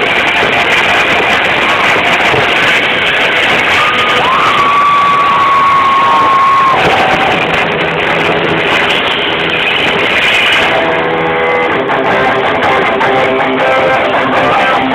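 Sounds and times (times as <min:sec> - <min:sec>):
held electric guitar notes: 0:00.0 - 0:14.9
live rock band playing loud: 0:00.0 - 0:14.9.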